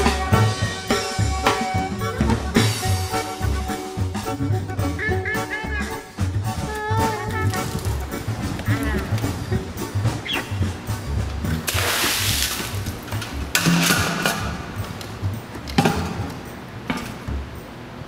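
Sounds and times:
music with repeating bass beat: 0:00.0 - 0:13.6.

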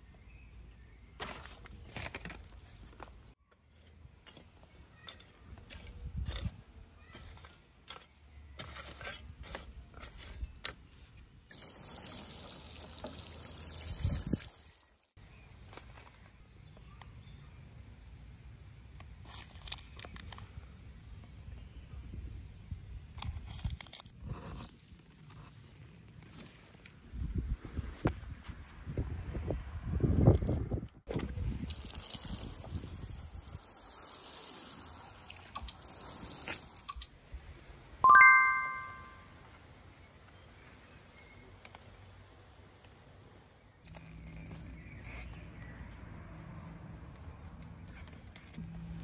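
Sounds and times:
bell-like ding: 0:38.1 - 0:39.2.

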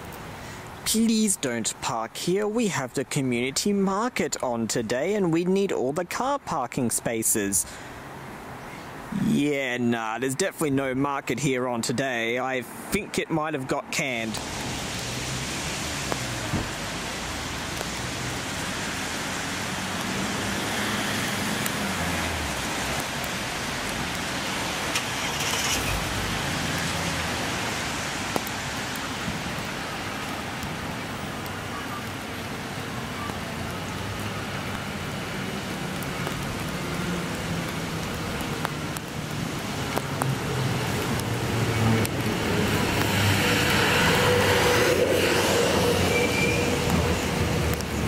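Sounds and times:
steady rain: 0:00.0 - 0:48.0
electric train running into platform: 0:42.4 - 0:47.6.

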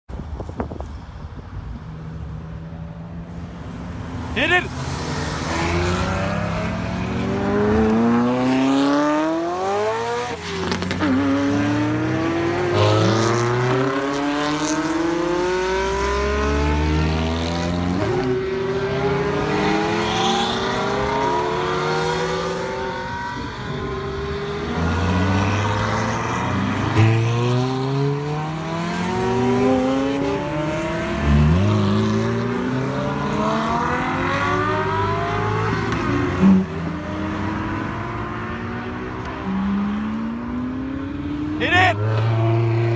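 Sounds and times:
sports cars accelerating hard: 0:03.4 - 0:42.9.

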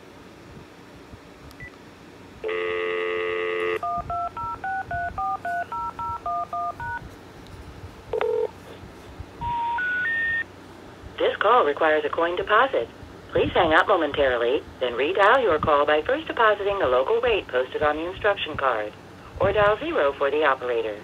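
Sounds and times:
telephone dial tone: 0:02.4 - 0:07.0, 0:08.1 - 0:08.5, 0:09.4 - 0:10.4
touch-tone digit beeps: 0:03.8 - 0:07.0.

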